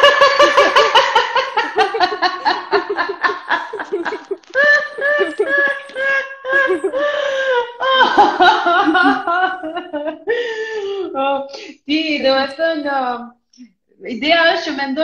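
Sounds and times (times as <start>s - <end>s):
person laughing: 0.0s - 10.3s.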